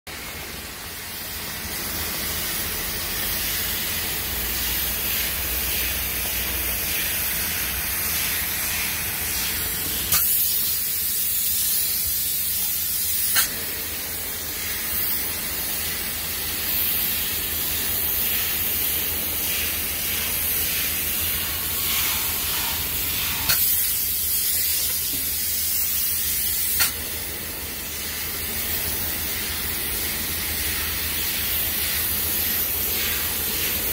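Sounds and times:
spray foam gun hissing: 0:00.1 - 0:33.9
spray gun click: 0:10.1 - 0:10.6, 0:13.0 - 0:13.6, 0:23.4 - 0:23.9, 0:26.6 - 0:27.0.

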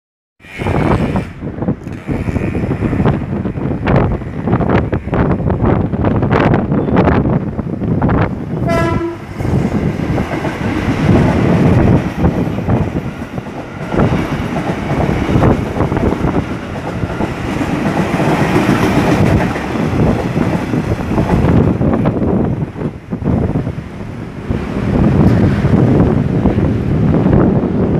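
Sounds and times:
train wheels on rails: 0:00.4 - 0:27.9
train horn toot: 0:08.6 - 0:09.3.

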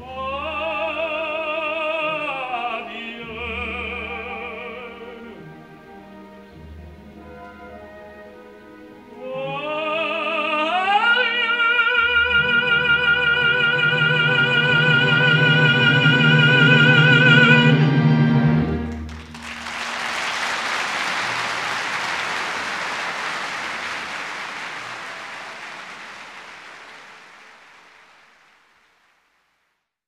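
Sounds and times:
orchestra playing: 0:02.1 - 0:27.2
audience applause: 0:18.8 - 0:29.3.

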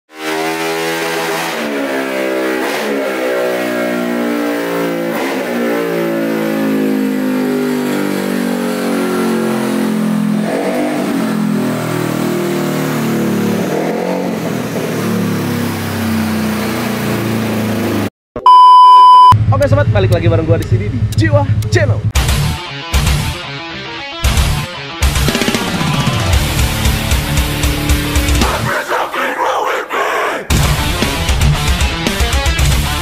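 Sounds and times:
vehicle engine revving: 0:00.1 - 0:18.1, 0:19.4 - 0:23.3, 0:24.2 - 0:28.7.

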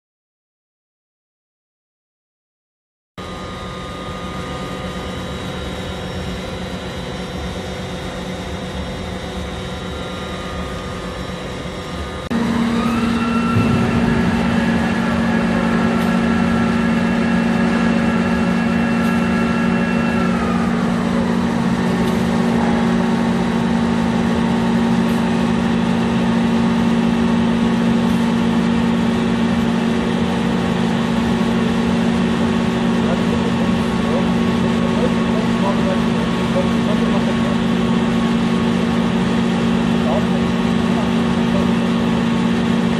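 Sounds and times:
machine rising whine: 0:03.2 - 0:42.9
welding machine mechanical hum: 0:03.2 - 0:42.9.

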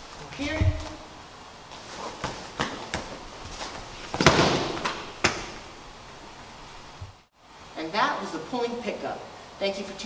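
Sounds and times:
fabric rustling: 0:00.0 - 0:05.0
body thudding on mat: 0:01.7 - 0:05.6
feet and hands slapping mat: 0:01.7 - 0:05.7.

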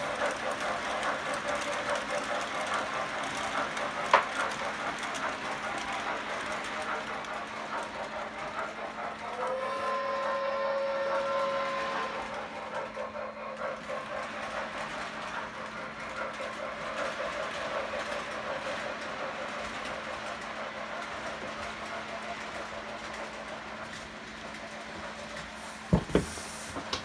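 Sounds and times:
model train rolling clatter: 0:00.0 - 0:27.0
steady whistle tone: 0:09.2 - 0:12.4.

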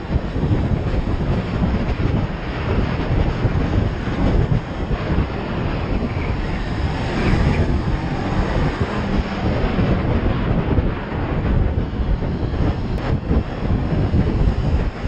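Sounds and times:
motorcycle engine running: 0:00.0 - 0:15.0
wind buffeting microphone: 0:00.0 - 0:15.0.

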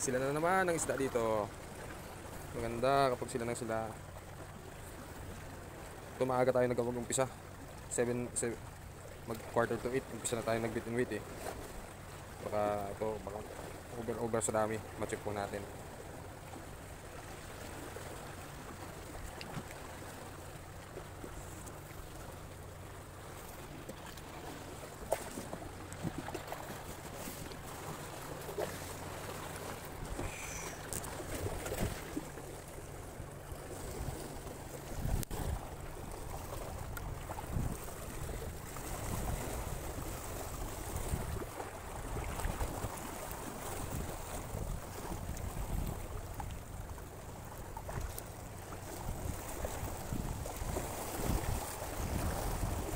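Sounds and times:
small clicks and rustles: 0:30.8 - 0:32.2
wind buffeting microphone: 0:34.9 - 0:43.0, 0:49.0 - 0:52.9.

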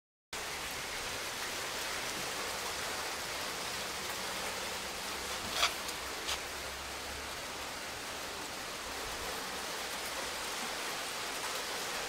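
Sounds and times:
hail and rain hissing: 0:00.4 - 0:12.0.

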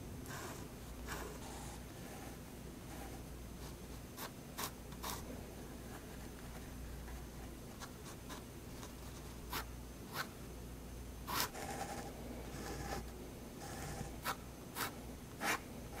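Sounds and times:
pen scratching on paper: 0:00.3 - 0:05.2, 0:11.3 - 0:16.0.

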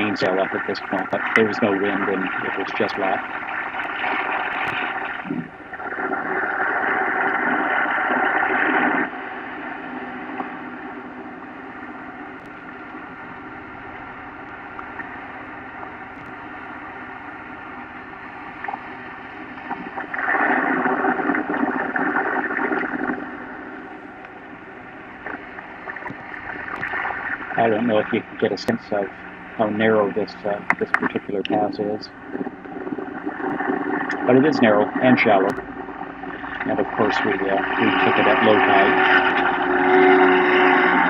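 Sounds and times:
boat engine running: 0:00.0 - 0:41.0
rushing noise: 0:00.0 - 0:41.0
water along hull: 0:00.0 - 0:41.0.

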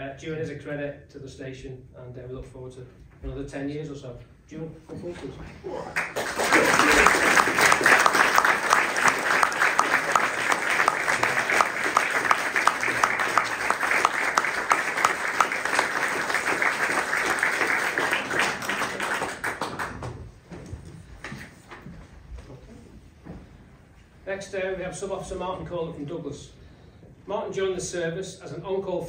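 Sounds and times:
audience applauding: 0:05.8 - 0:20.4.

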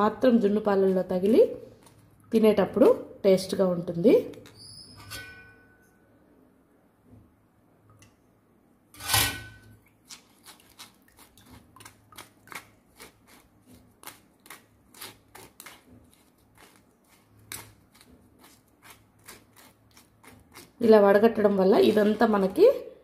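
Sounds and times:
spoon scraping through strainer: 0:09.0 - 0:09.7.

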